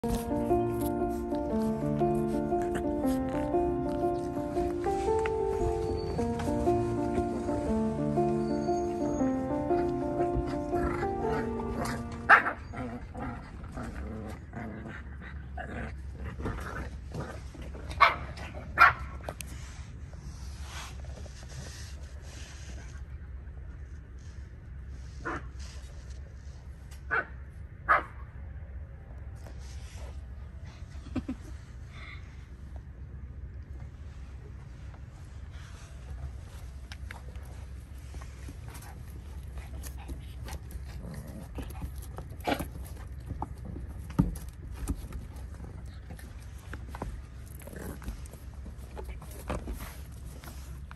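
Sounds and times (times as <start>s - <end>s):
puppy barking: 10.8s - 12.8s, 27.9s - 28.2s.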